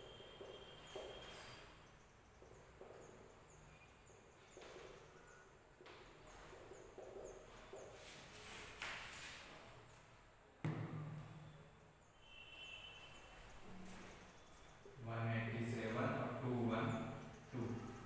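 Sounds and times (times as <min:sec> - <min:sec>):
marker squeaking on whiteboard: 0:00.0 - 0:01.8, 0:02.4 - 0:09.5.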